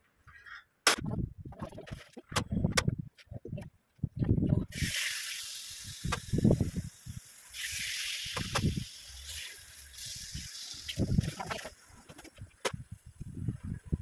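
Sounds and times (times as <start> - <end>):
wind on microphone: 1.0 - 5.0, 5.8 - 7.2, 8.2 - 8.9, 10.1 - 14.0
meat sizzling on grill: 4.7 - 12.2.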